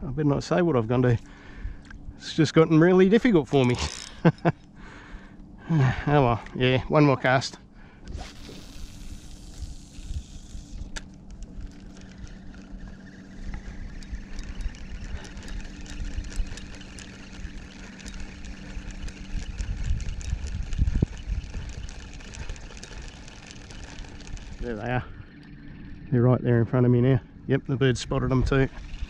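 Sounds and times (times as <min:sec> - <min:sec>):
low engine hum: 0:00.0 - 0:29.0
wind rumbling on microphone: 0:08.0 - 0:29.0.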